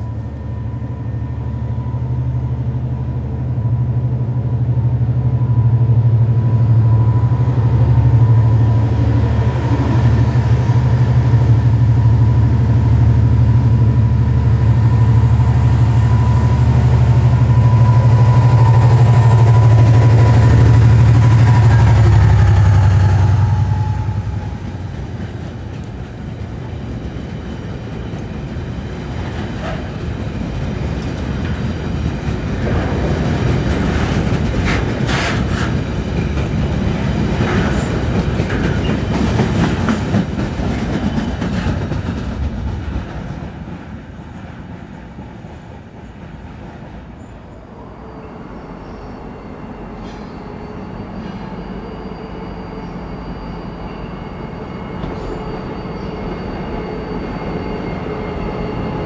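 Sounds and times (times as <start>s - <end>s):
diesel locomotive engine: 0.0s - 59.0s
train wheels clattering over track: 18.4s - 47.2s, 49.9s - 51.7s, 54.5s - 59.0s.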